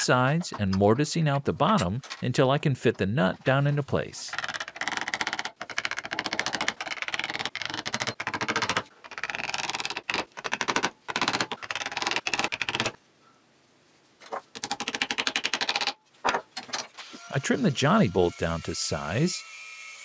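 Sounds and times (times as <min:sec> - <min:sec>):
wood chisel clicking: 0:04.3 - 0:13.0, 0:14.6 - 0:16.0.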